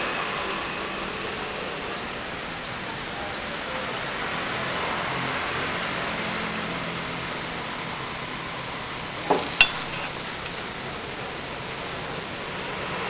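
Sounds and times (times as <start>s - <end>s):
ringing clink: 9.6s - 10.5s.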